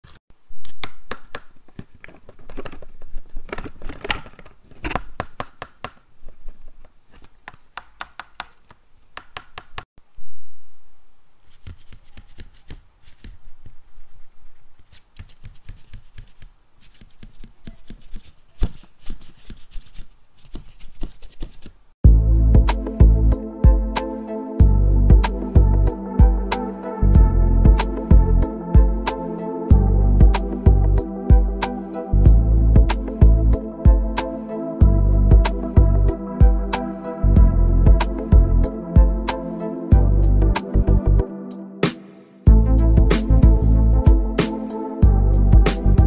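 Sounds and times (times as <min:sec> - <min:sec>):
music: 0:22.0 - 0:46.0.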